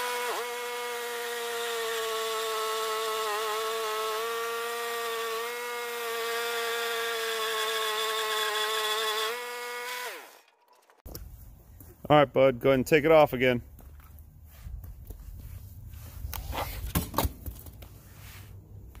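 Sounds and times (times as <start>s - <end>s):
bandsaw mill sawing log: 0.0s - 11.1s.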